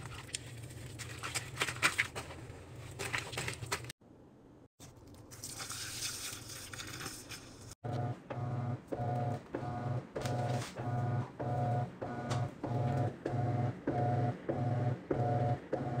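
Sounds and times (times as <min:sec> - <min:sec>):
washing machine motor humming: 0:07.8 - 0:16.0.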